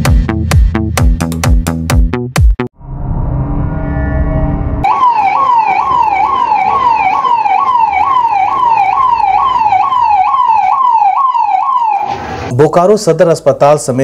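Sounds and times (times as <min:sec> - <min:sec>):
ambulance siren: 0:04.8 - 0:12.5.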